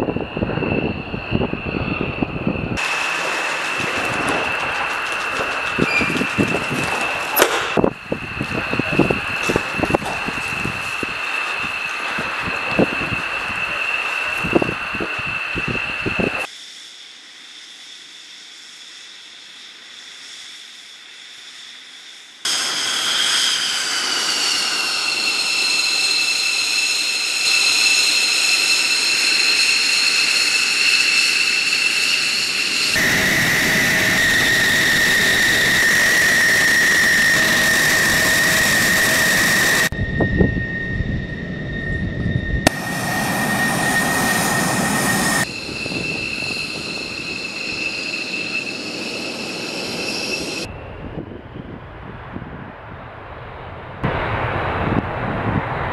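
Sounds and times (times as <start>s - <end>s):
jet engine whining: 0.0s - 16.5s, 22.5s - 52.3s
rushing exhaust noise: 0.0s - 16.5s, 22.5s - 52.5s.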